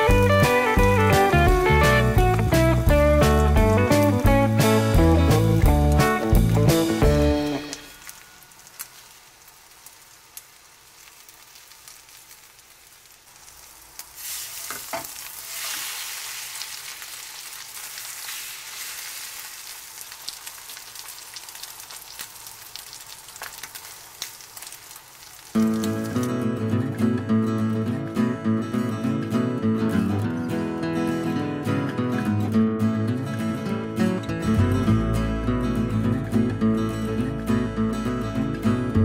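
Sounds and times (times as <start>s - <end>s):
omelet sizzling in a pan: 0.0s - 26.5s.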